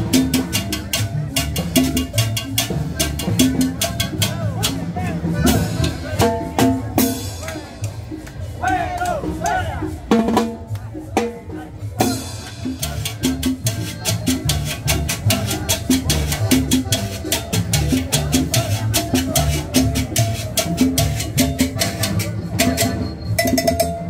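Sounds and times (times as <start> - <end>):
fast percussion beat: 0.0 - 24.0
upright bass line: 0.0 - 24.0.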